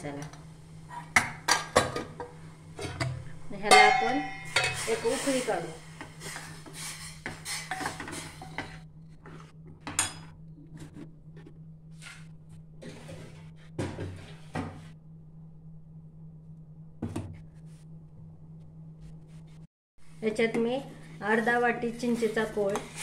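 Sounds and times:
steady low hum: 0:00.0 - 0:23.0
steel ladle scraping a saucepan: 0:04.3 - 0:05.6.

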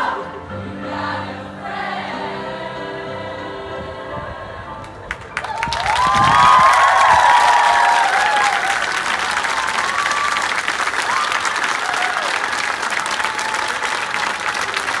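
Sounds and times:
crowd applauding: 0:05.0 - 0:15.0.

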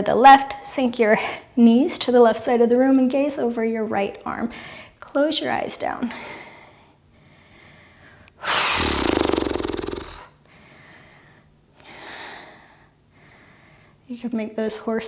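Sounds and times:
person inhaling: 0:07.2 - 0:12.6
exhale through fluttering lips: 0:08.4 - 0:10.3.

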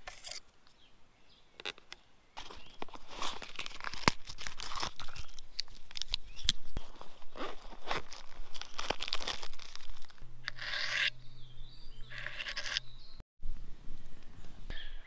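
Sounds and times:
packet tearing and crinkling: 0:02.4 - 0:10.2.

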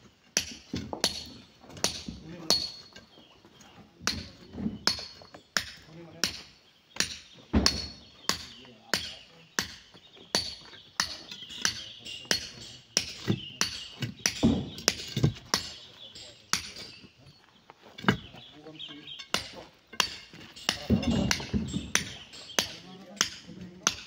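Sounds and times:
hammers striking stone: 0:00.3 - 0:03.0, 0:04.0 - 0:17.1, 0:18.0 - 0:18.4, 0:19.1 - 0:24.0.

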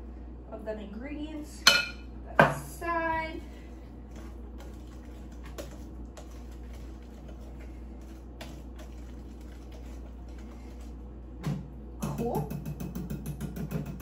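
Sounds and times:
spatula scraping batter in bowl: 0:04.1 - 0:11.0.

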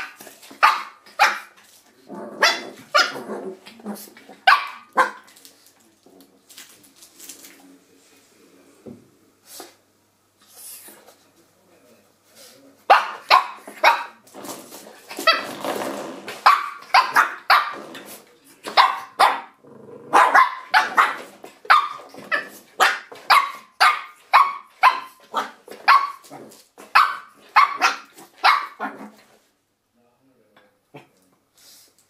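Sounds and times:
puppy barking: 0:00.0 - 0:01.6, 0:02.4 - 0:03.2, 0:04.4 - 0:05.3, 0:12.9 - 0:14.2, 0:16.4 - 0:17.8, 0:18.7 - 0:26.3, 0:26.9 - 0:29.0.

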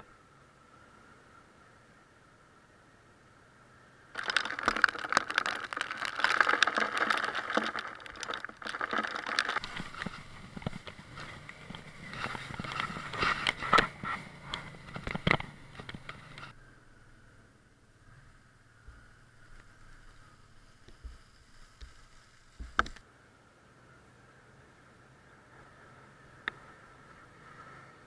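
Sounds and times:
water spray pattering on camera: 0:04.2 - 0:16.5.

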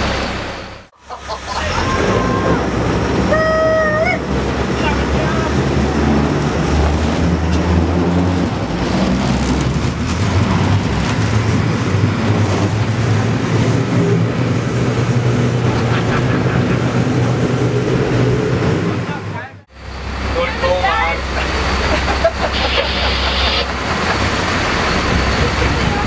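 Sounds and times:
boat engines running: 0:00.0 - 0:26.0
water rushing and splashing: 0:01.2 - 0:13.8, 0:19.8 - 0:26.0.

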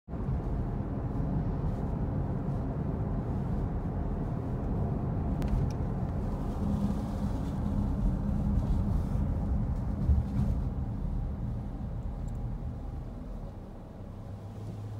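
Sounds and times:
car road noise rumble: 0:00.1 - 0:14.9.

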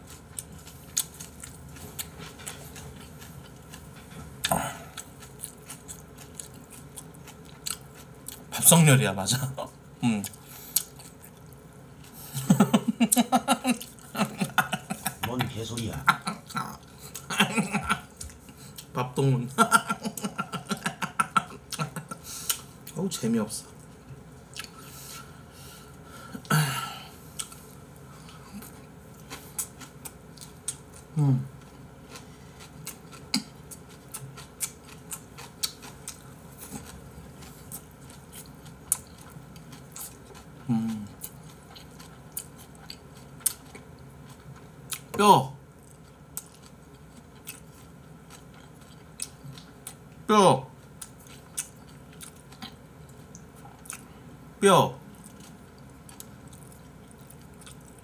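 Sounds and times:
person chewing: 0:00.0 - 0:08.5, 0:10.2 - 0:19.0, 0:19.7 - 0:23.1, 0:23.7 - 0:54.3, 0:55.1 - 0:58.0
breathy grunt: 0:04.5 - 0:04.9, 0:26.4 - 0:27.2
breathy noise: 0:24.8 - 0:27.4.

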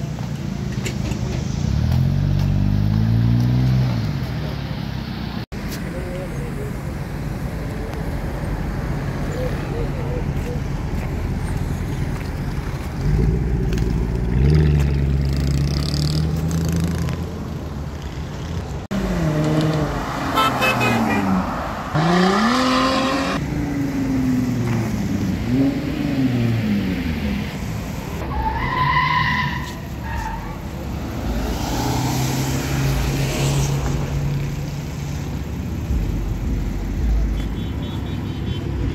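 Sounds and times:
car engine revving: 0:18.9 - 0:27.2.

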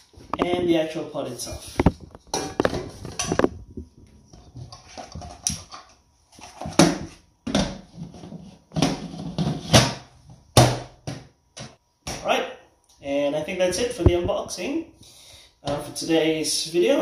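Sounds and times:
pot knocking and scraping: 0:01.7 - 0:03.6, 0:04.3 - 0:09.9.

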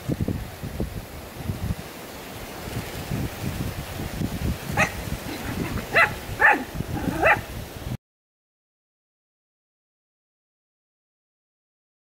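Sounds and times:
puppy barking: 0:04.8 - 0:07.5.

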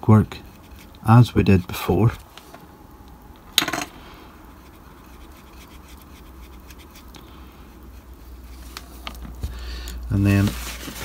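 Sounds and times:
paintbrush scratching: 0:00.2 - 0:02.2, 0:04.4 - 0:09.0.

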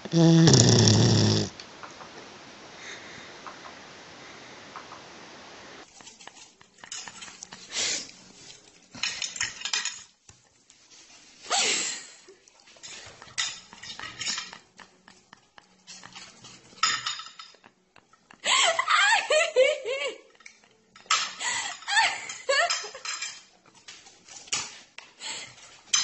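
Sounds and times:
cutlery clinking on plate: 0:06.0 - 0:07.7, 0:09.0 - 0:10.4, 0:12.8 - 0:18.2, 0:20.4 - 0:24.8.

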